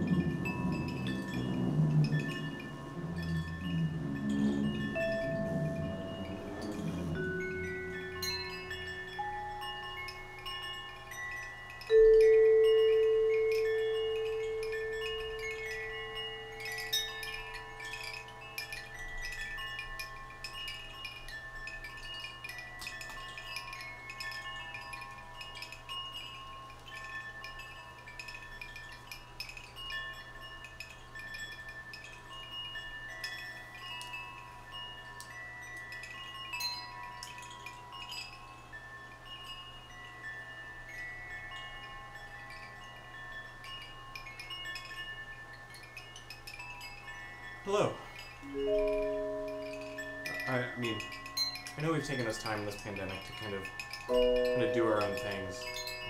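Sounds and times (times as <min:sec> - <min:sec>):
deep bell-like tone: 0:00.0 - 0:19.1, 0:48.4 - 0:51.9, 0:54.1 - 0:56.0
metal chimes ringing: 0:00.0 - 0:56.0.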